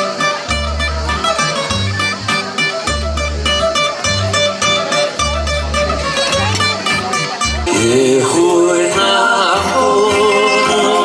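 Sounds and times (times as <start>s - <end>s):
bouzouki plucked melody: 0.0s - 11.0s.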